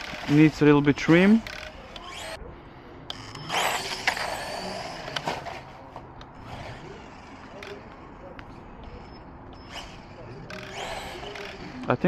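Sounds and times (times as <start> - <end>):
rc car motor and tyres: 0.0 - 12.0.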